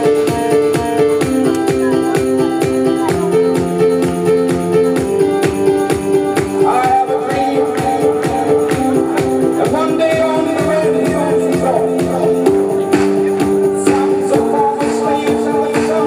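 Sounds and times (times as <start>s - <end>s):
dance music with quick beat: 0.0s - 16.0s.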